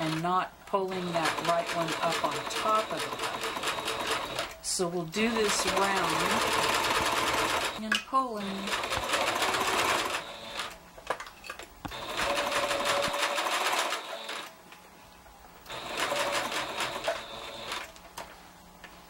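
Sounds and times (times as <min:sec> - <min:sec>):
sewing machine stitching: 0:00.9 - 0:04.6, 0:05.2 - 0:07.8, 0:08.4 - 0:10.8, 0:11.9 - 0:14.5, 0:15.7 - 0:17.9.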